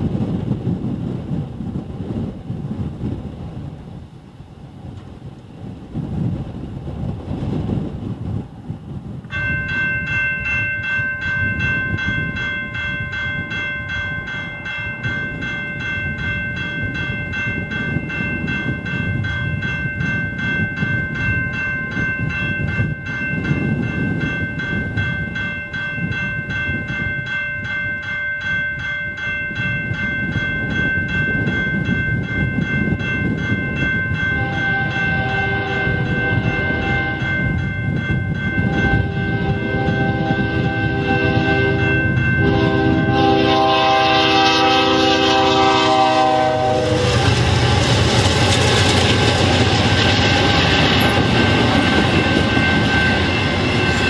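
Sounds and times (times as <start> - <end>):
low rumble of wind: 0.0 - 54.0
railroad crossing bell ringing: 9.2 - 54.0
train horn: 34.3 - 37.5, 38.6 - 54.0.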